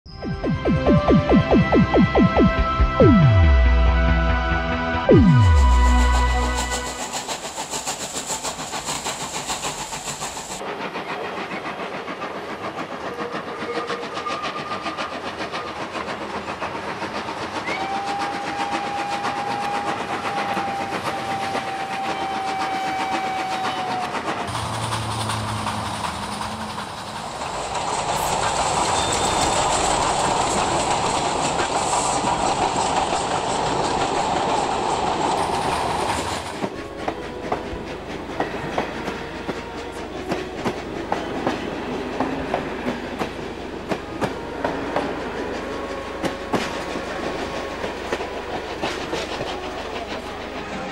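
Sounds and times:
steam train running: 0:00.1 - 0:50.9
steam train whistle: 0:03.2 - 0:08.4, 0:17.2 - 0:24.5, 0:36.0 - 0:50.9.

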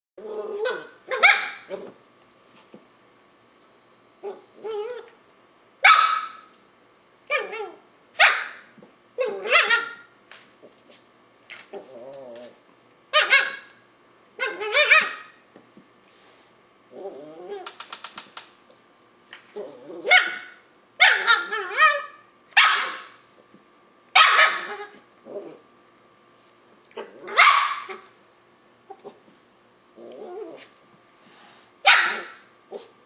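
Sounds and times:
puppy growling: 0:00.2 - 0:02.0, 0:04.2 - 0:05.2, 0:11.6 - 0:12.6, 0:16.9 - 0:17.8, 0:19.5 - 0:20.4, 0:24.4 - 0:25.7, 0:26.9 - 0:28.1, 0:30.0 - 0:30.8
puppy barking and yapping: 0:00.5 - 0:02.0, 0:05.8 - 0:06.5, 0:07.3 - 0:10.1, 0:13.1 - 0:13.8, 0:14.4 - 0:15.4, 0:20.0 - 0:23.2, 0:24.2 - 0:25.0, 0:27.0 - 0:28.1, 0:31.8 - 0:33.0.

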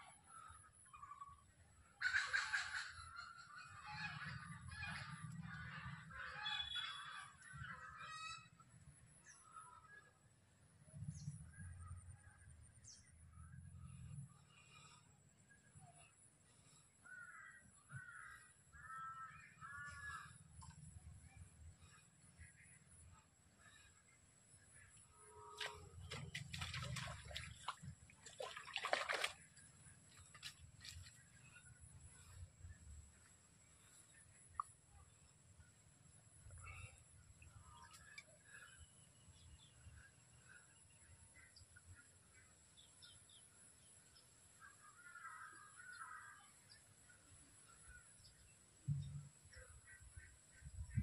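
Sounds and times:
fish splashing in water: 0:25.6 - 0:31.2.

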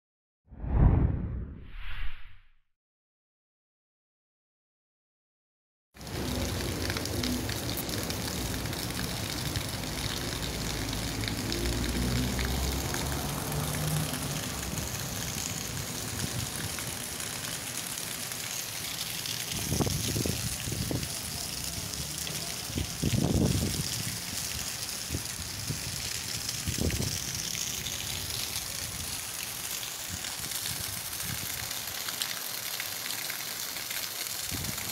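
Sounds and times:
low bumps: 0:00.6 - 0:02.5
car driving on wet cobbles: 0:06.0 - 0:29.9
rain on cobblestones and roofs: 0:06.0 - 0:34.9.

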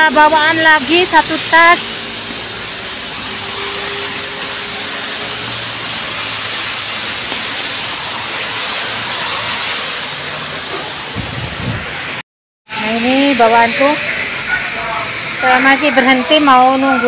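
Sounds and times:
light rain hissing: 0:00.0 - 0:12.2
traffic on a wet street: 0:00.0 - 0:17.0.

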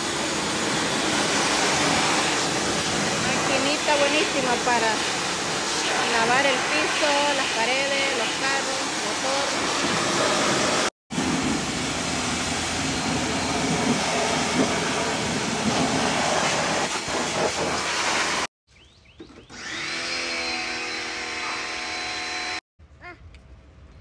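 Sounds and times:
pressure washer spraying water: 0:00.0 - 0:18.5
pressure washer whine: 0:00.0 - 0:18.5, 0:19.5 - 0:22.6.

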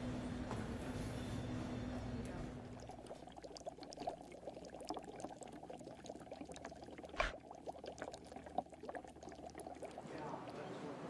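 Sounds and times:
liquid bubbling in a pot: 0:02.6 - 0:11.0.

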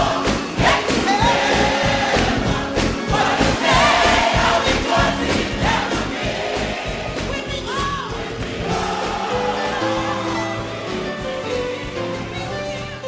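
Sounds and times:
band with steady beat: 0:00.0 - 0:10.0
choir singing gospel: 0:00.0 - 0:13.0.

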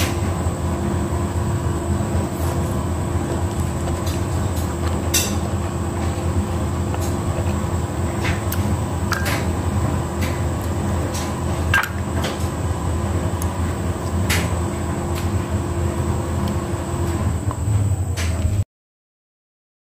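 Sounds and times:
low machine hum: 0:00.0 - 0:18.6.

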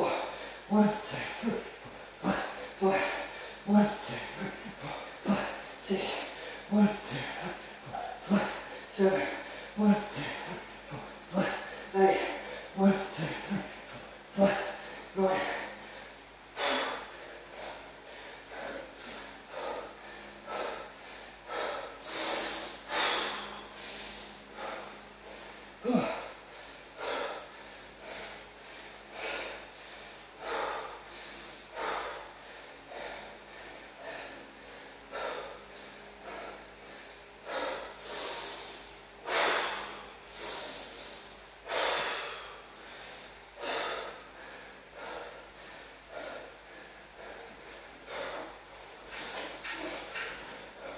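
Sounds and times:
man grunting: 0:00.0 - 0:15.8, 0:25.8 - 0:26.4
man panting: 0:00.0 - 0:50.9.

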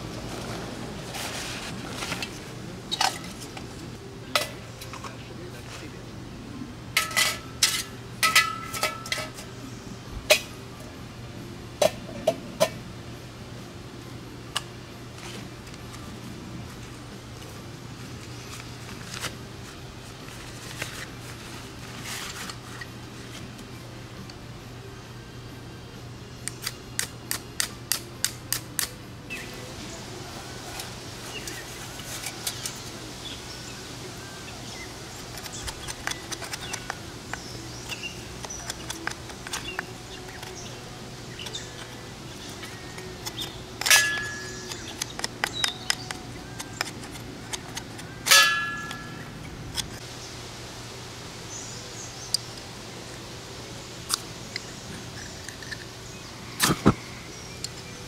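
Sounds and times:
metallic clanks: 0:07.0 - 0:09.5, 0:43.3 - 0:46.1, 0:48.3 - 0:49.2
birds chirping: 0:31.2 - 0:50.4.

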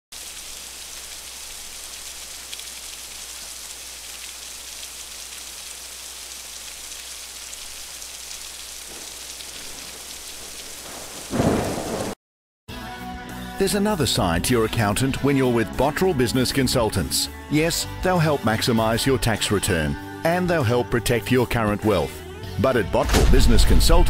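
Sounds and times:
heavy rain falling: 0:00.1 - 0:12.2.

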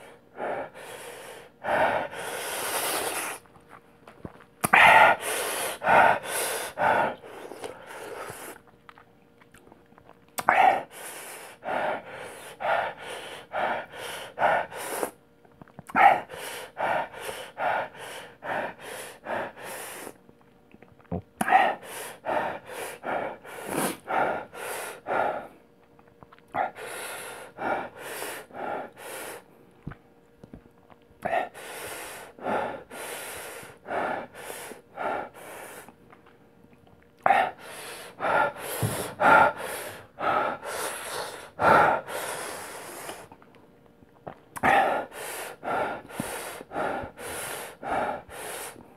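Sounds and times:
man panting hard: 0:00.0 - 0:03.4, 0:04.7 - 0:08.5, 0:10.4 - 0:15.2, 0:15.9 - 0:20.2, 0:21.4 - 0:25.6, 0:26.6 - 0:29.5, 0:31.2 - 0:35.9, 0:37.3 - 0:43.3, 0:44.6 - 0:48.9.

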